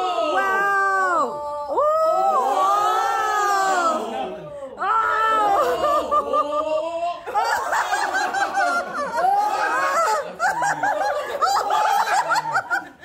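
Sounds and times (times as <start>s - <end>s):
people laughing and giggling: 4.9s - 13.0s.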